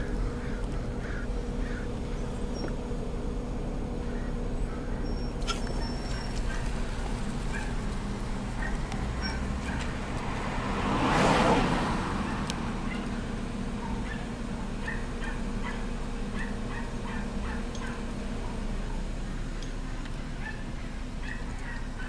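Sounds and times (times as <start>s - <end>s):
steady low hum: 0.0s - 10.1s
small dogs barking and yapping: 5.0s - 10.2s, 12.1s - 22.0s.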